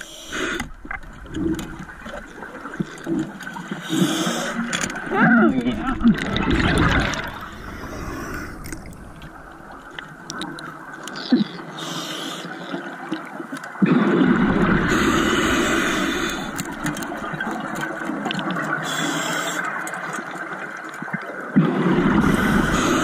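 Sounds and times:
underwater regulator bubbling: 0.0s - 12.5s
underwater water noise: 0.0s - 23.0s.

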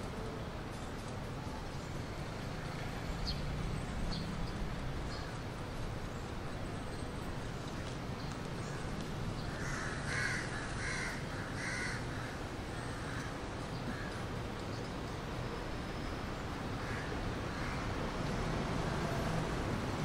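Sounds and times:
crow cawing: 9.5s - 13.3s, 16.8s - 17.9s.

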